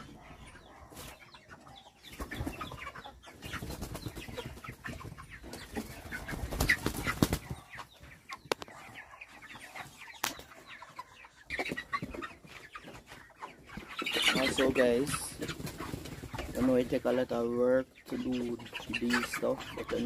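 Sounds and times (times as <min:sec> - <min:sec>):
chickens clucking: 0:00.0 - 0:20.0.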